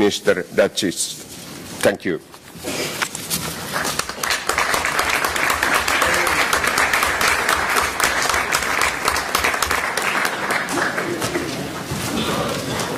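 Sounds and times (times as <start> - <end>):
audience applauding: 3.7 - 11.9.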